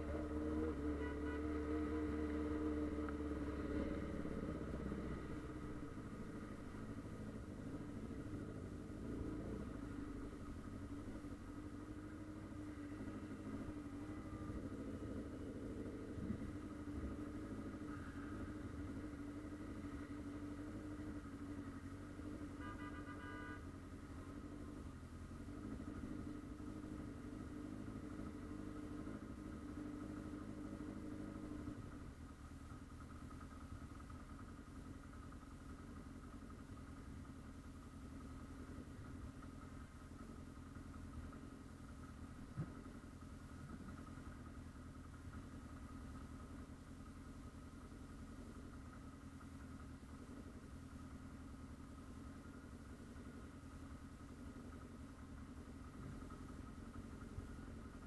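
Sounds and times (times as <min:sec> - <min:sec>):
low hum of idling vehicles: 0:00.0 - 0:58.0
motorcycle engine idling: 0:00.0 - 0:58.0.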